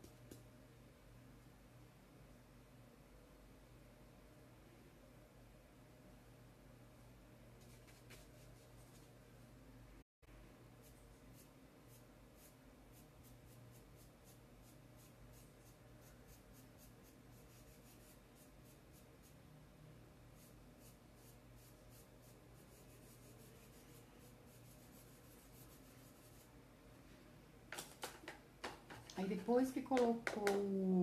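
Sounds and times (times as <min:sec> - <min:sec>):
paintbrush scratching on cloth: 0:10.8 - 0:19.4, 0:20.3 - 0:26.6.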